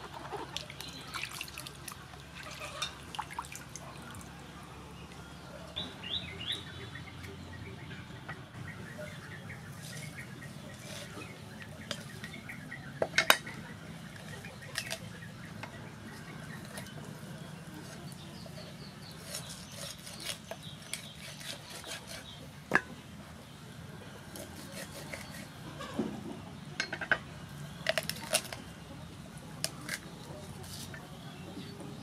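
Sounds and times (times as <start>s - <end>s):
cleaver cutting raw chicken: 17.8s - 22.9s, 24.3s - 26.1s.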